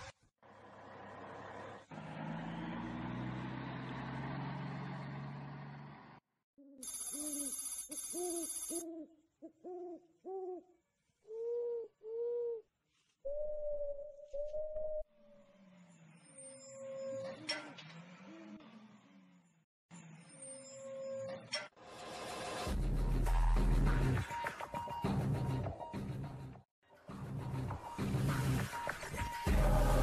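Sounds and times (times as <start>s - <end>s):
owl hooting: 8.1s - 12.7s.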